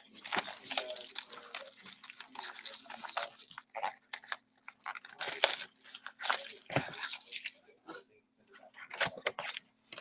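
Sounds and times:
plastic shrink wrap crinkling: 0:00.0 - 0:08.0.

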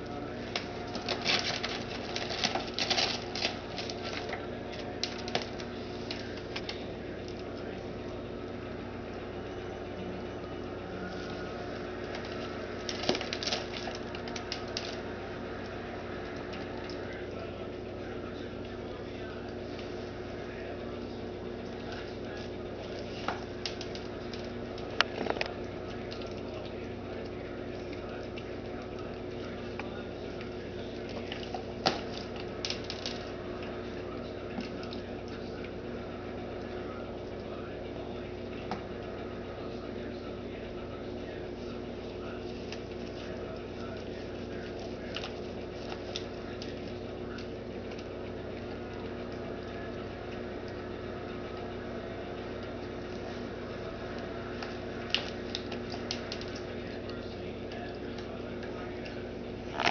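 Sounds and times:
steady low hum: 0:00.0 - 0:59.9
plastic bag crinkling: 0:00.2 - 0:07.4, 0:11.1 - 0:15.1, 0:59.7 - 0:59.9.

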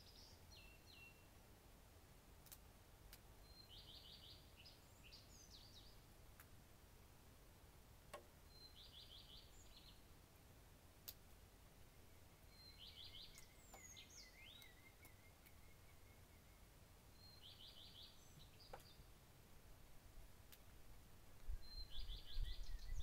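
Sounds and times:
faint songbird song: 0:00.0 - 0:23.0
bird chirping thinly: 0:11.9 - 0:19.0.

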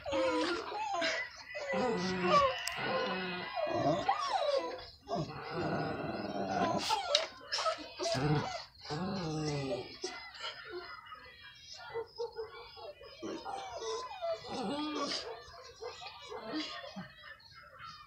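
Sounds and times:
dog whining and growling: 0:00.0 - 0:09.8, 0:13.2 - 0:15.3.

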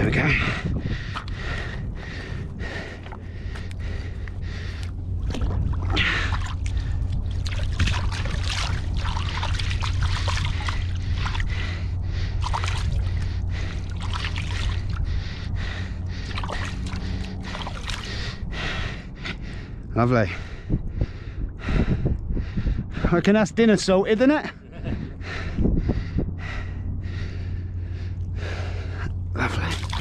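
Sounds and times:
heavy breathing: 0:00.1 - 0:05.2, 0:10.4 - 0:23.2, 0:24.5 - 0:30.0
river water splashing: 0:05.2 - 0:11.5, 0:12.3 - 0:15.0, 0:16.2 - 0:18.4, 0:29.4 - 0:30.0.

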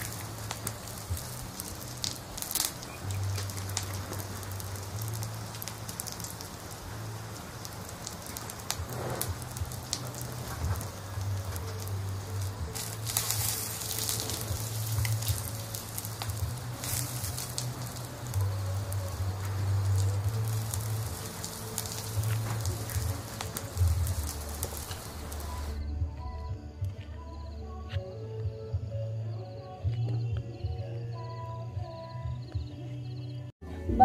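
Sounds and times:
campfire crackling and popping: 0:00.0 - 0:25.8.

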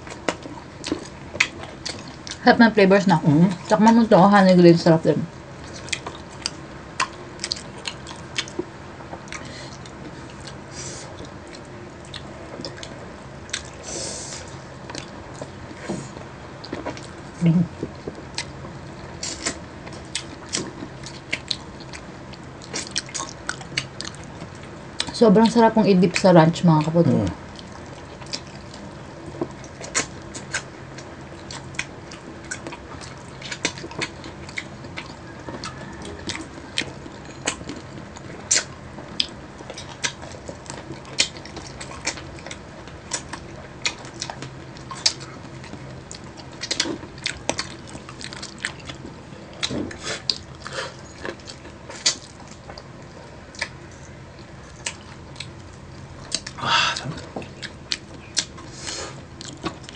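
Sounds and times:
crunching chicken wings: 0:27.5 - 0:59.9.

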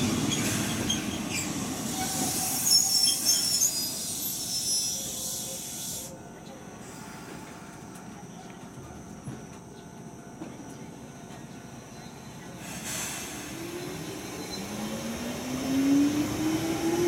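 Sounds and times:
train brake squeal and hiss: 0:00.1 - 0:06.2, 0:12.1 - 0:14.8
train equipment low hum: 0:04.9 - 0:17.0.

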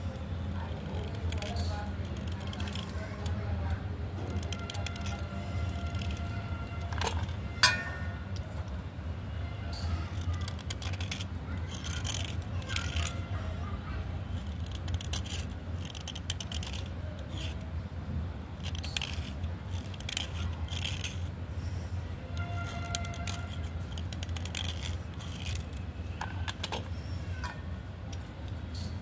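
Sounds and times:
blade scraping slate pencil: 0:00.6 - 0:07.3, 0:09.8 - 0:13.5, 0:14.2 - 0:17.7, 0:18.6 - 0:21.3, 0:22.4 - 0:26.9.

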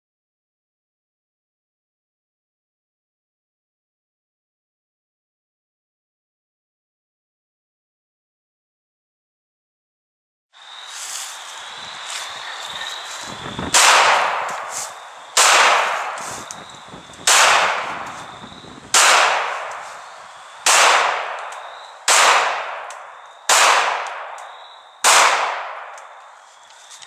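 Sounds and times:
pistol shots with echo: 0:13.7 - 0:16.5, 0:17.2 - 0:26.2.

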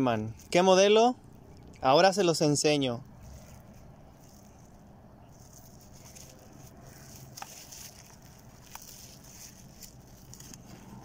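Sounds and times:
plastic wrapping rustling: 0:03.2 - 0:11.0.

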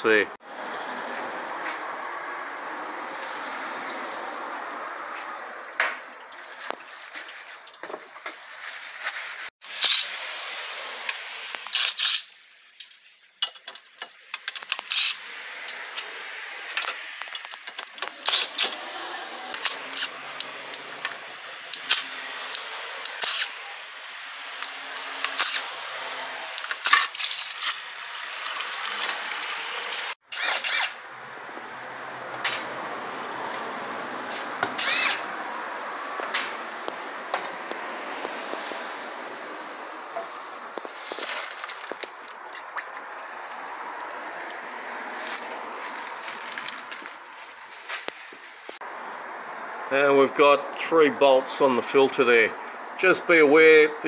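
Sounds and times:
cordless drill bursts: 0:30.3 - 0:31.0, 0:34.8 - 0:35.2.

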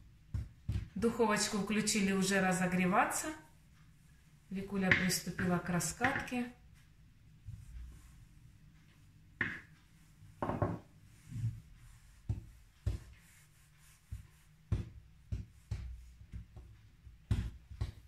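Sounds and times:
rolling pin knocking on counter: 0:09.4 - 0:09.7, 0:10.4 - 0:10.9, 0:14.1 - 0:18.0
rolling pin rubbing dough: 0:09.4 - 0:18.0.

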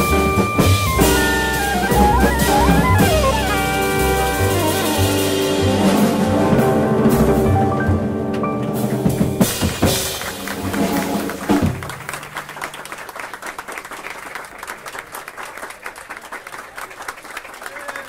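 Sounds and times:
audience applause: 0:00.0 - 0:05.3, 0:09.4 - 0:18.0
drum hits: 0:00.0 - 0:12.2
jazz quartet playing: 0:00.0 - 0:12.2.

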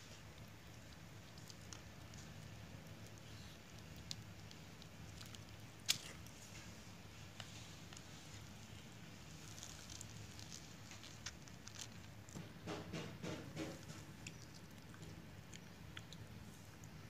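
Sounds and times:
crisp fish skin crackling: 0:00.2 - 0:06.4, 0:07.3 - 0:12.5
paper crinkling: 0:03.1 - 0:12.5.

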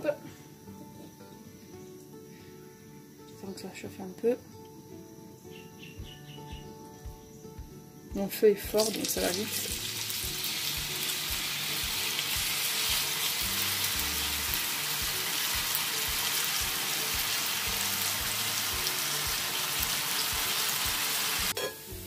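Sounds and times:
food sizzling in hot oil: 0:08.8 - 0:22.0.

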